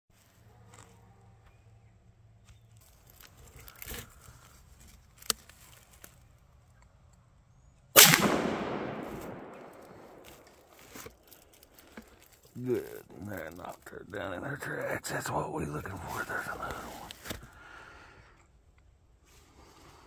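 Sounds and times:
rifle shot echoing through woods: 0:08.0 - 0:11.1.

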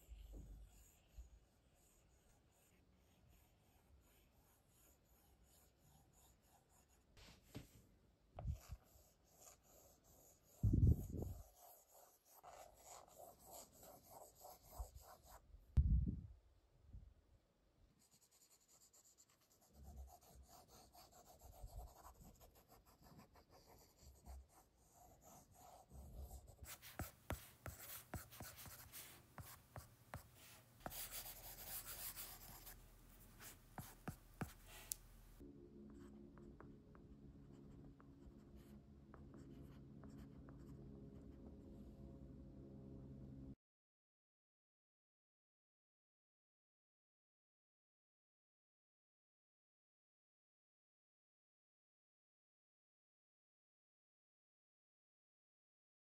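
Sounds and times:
stylus scratching and tapping on screen: 0:25.1 - 0:35.4.

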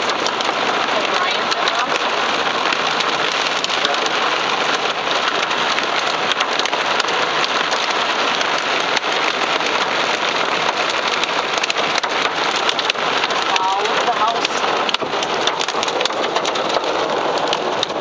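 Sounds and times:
heavy rain on a car roof: 0:00.0 - 0:18.0.

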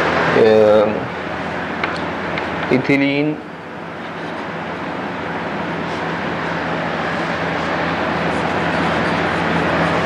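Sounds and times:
low even hum: 0:00.0 - 0:10.0.

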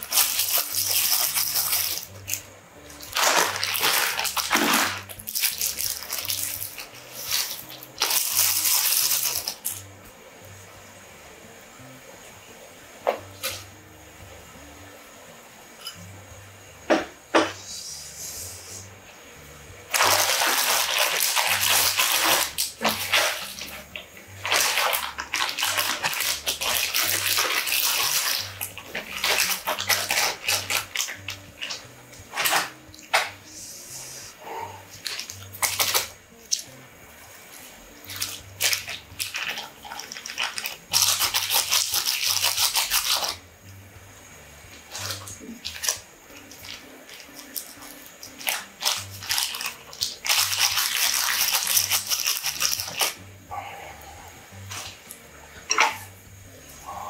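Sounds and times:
plastic packets crinkling and tearing: 0:00.0 - 0:02.4, 0:03.0 - 0:09.8, 0:19.9 - 0:23.8, 0:24.4 - 0:31.8, 0:35.0 - 0:36.1, 0:38.0 - 0:43.4, 0:44.9 - 0:53.2.

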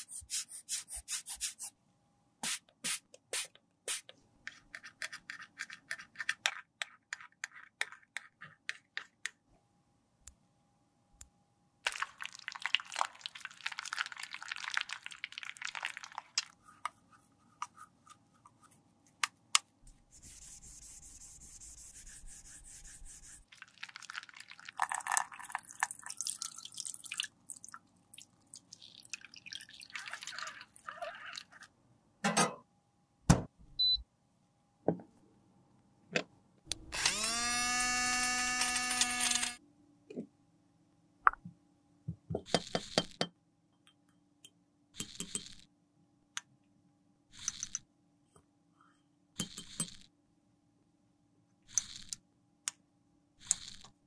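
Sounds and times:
brush scrubbing powder compact: 0:04.5 - 0:09.3, 0:16.4 - 0:19.2, 0:20.0 - 0:23.5.

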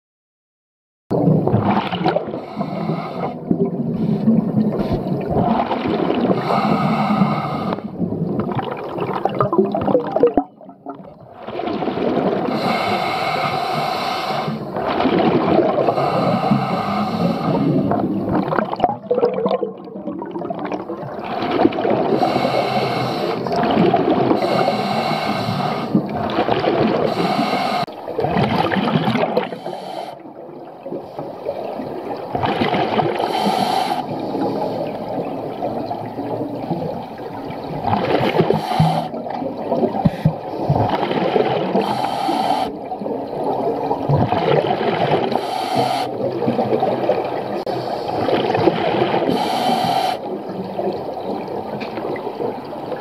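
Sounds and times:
gurgling exhaled bubbles: 0:01.1 - 0:53.0
hissing regulator inhalations: 0:02.4 - 0:03.4, 0:06.4 - 0:07.9, 0:12.5 - 0:14.7, 0:15.9 - 0:17.9, 0:22.1 - 0:23.5, 0:24.4 - 0:26.0, 0:27.1 - 0:27.9, 0:29.4 - 0:30.2, 0:33.2 - 0:35.0, 0:38.4 - 0:39.2, 0:41.8 - 0:42.9, 0:45.3 - 0:46.4, 0:49.3 - 0:50.4.

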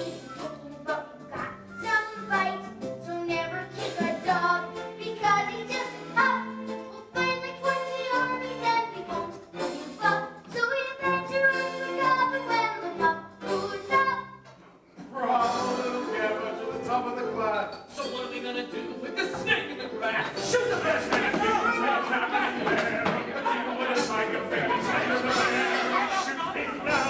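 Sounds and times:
pit orchestra playing: 0:15.2 - 0:27.0.

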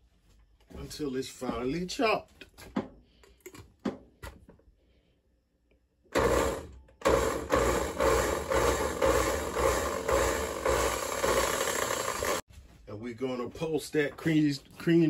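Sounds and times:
blender motor running: 0:06.1 - 0:12.4.

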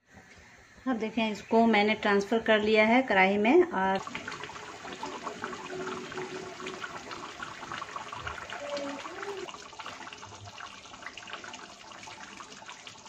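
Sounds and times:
gravy simmering with bubbling pops: 0:03.9 - 0:13.0.

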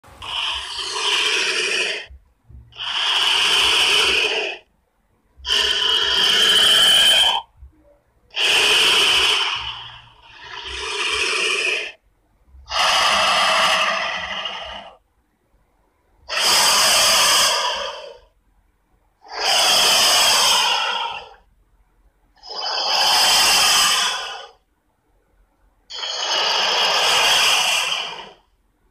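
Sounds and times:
monster hissing: 0:00.2 - 0:02.1, 0:02.7 - 0:04.6, 0:05.4 - 0:07.4, 0:08.3 - 0:12.0, 0:12.6 - 0:15.0, 0:16.3 - 0:18.2, 0:19.2 - 0:21.4, 0:22.4 - 0:24.6, 0:25.9 - 0:28.4.

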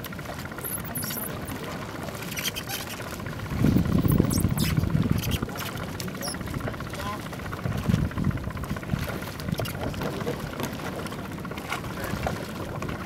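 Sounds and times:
low surge of water: 0:00.0 - 0:13.0
water lapping and splashing: 0:00.0 - 0:13.0
small sharp clicks and squeaks: 0:02.2 - 0:03.0, 0:04.1 - 0:06.4.

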